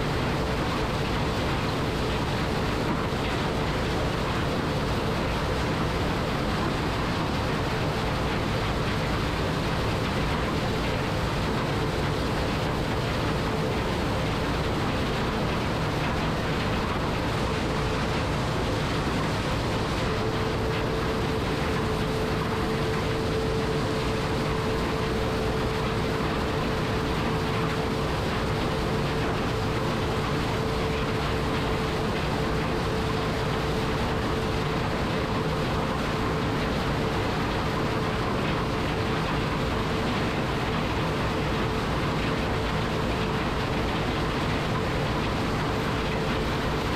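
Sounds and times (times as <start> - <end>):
machine whine: 8.7 - 46.9
combine harvester running: 10.0 - 41.3.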